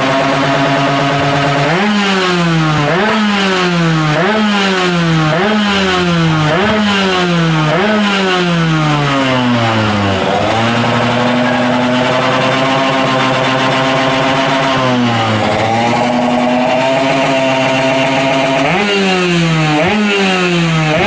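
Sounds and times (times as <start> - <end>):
two-stroke motorcycle engine revving: 0.0 - 21.0.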